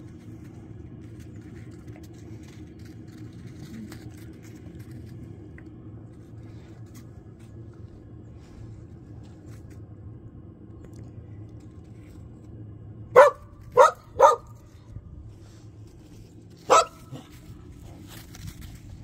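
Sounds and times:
puppy barking: 13.2s - 14.6s, 16.6s - 17.3s.

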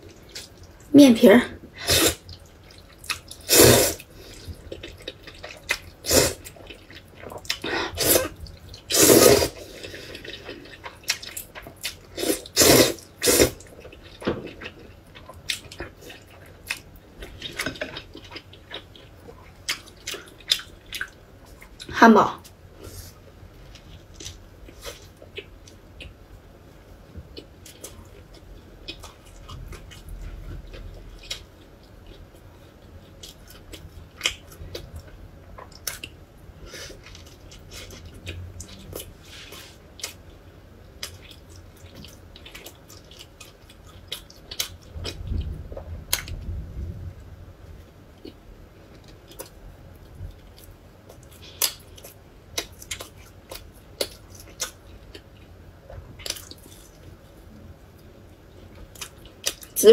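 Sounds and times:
chewing and biting food: 49.0s - 57.2s.

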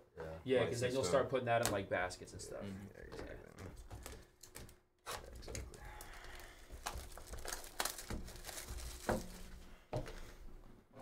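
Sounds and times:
plastic wrap crinkling and tearing: 3.9s - 9.7s.

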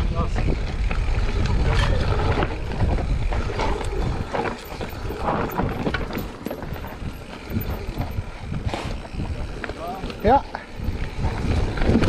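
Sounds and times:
bike rattling and knocking: 0.0s - 12.0s
bike tyres rolling over dirt: 0.0s - 12.0s
wind noise on microphone: 0.0s - 12.0s.

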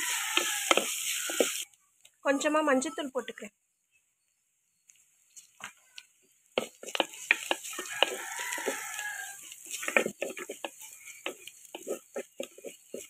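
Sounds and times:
rooster crowing: 0.0s - 1.6s, 7.7s - 9.5s
wooden spoon knocking on pot: 6.6s - 8.9s, 9.7s - 13.0s.

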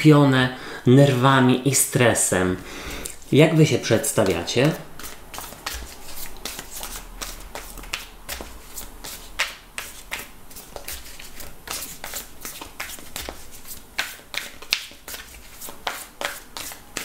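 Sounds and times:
cards shuffling: 3.9s - 17.0s.

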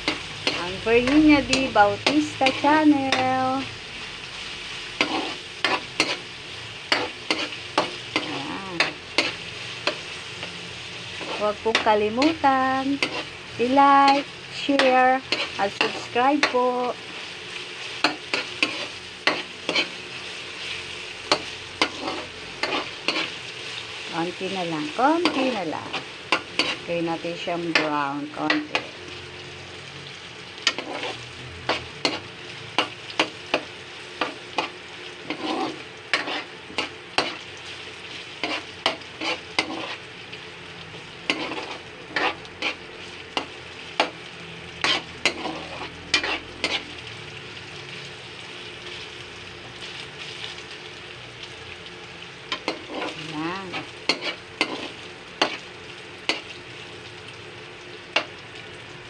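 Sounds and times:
meat sizzling in a wok: 0.0s - 59.0s
metal ladle scraping a pan: 5.0s - 6.3s, 11.1s - 16.6s, 17.8s - 23.5s, 30.6s - 33.6s, 34.5s - 37.4s, 38.4s - 40.1s, 41.2s - 42.8s, 44.8s - 47.0s, 52.5s - 55.6s.

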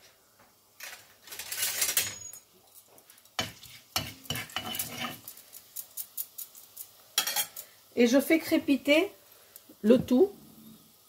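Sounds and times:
spices sizzling in hot oil: 0.0s - 11.0s
wooden spatula scraping pan: 3.4s - 5.3s.

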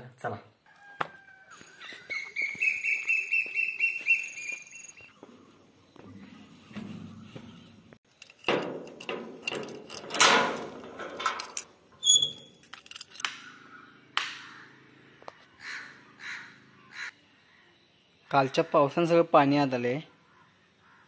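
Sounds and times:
padlock clicking and rattling: 8.1s - 13.3s
crow cawing: 13.4s - 17.6s, 20.2s - 21.0s.

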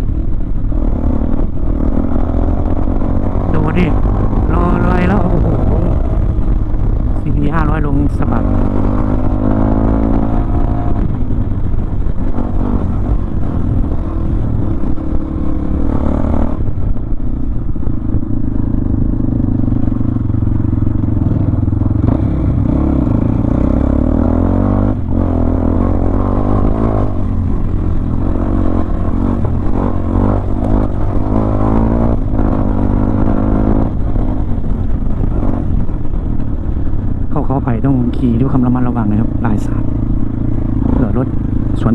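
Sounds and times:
motorcycle engine revving: 0.0s - 41.9s.

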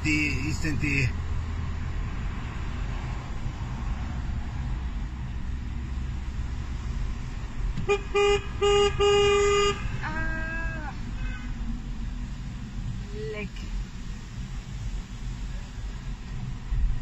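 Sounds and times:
car horn honking: 7.8s - 10.8s.

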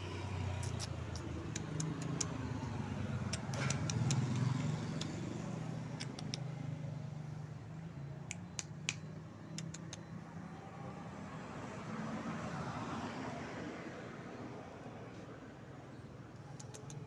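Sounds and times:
vehicle engine humming: 0.0s - 12.8s, 14.2s - 17.0s
short sharp clicks: 3.2s - 5.2s, 6.0s - 6.5s, 8.2s - 10.1s, 16.4s - 17.0s.

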